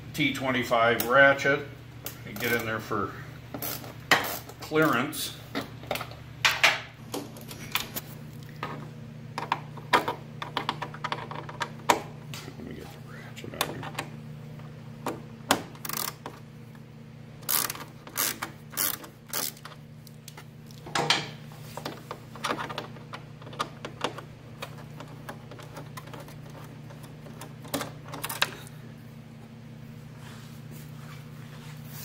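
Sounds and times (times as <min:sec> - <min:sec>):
steady low hum: 0:00.0 - 0:32.0
hand ratchet clicking: 0:15.8 - 0:16.2, 0:17.4 - 0:19.8.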